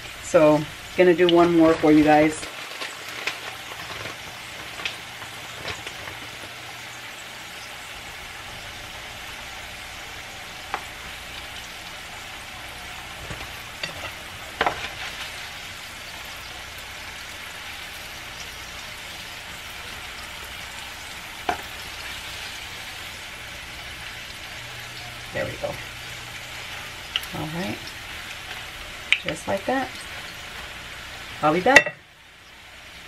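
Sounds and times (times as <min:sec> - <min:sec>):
oil sizzling on a griddle: 0:00.0 - 0:33.0
utensils knocking against pan: 0:31.7 - 0:32.0.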